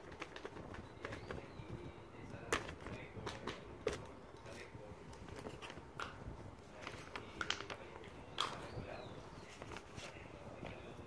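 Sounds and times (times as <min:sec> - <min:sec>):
plastic toys tapping and clicking: 0:00.0 - 0:04.6, 0:06.8 - 0:08.8.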